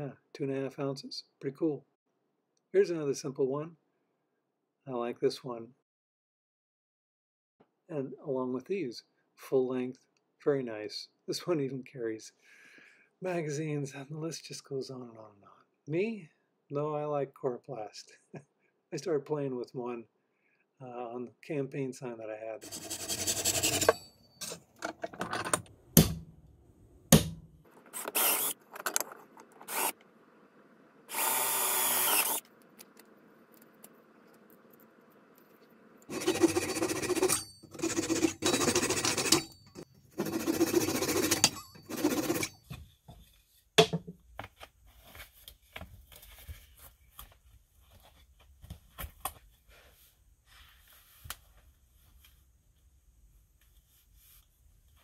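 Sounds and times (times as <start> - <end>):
hand saw cutting wood: 22.6 - 24.6, 36.1 - 42.6
knocks and clicks of wood and tools: 27.1 - 29.7, 43.8 - 44.6.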